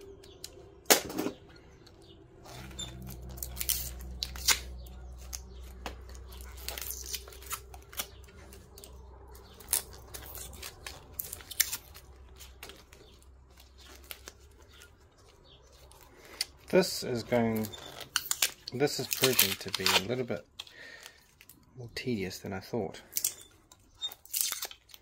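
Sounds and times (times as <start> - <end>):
low steady hum: 0.0 - 24.1
paper scraping and tearing: 2.4 - 14.8, 15.8 - 20.4.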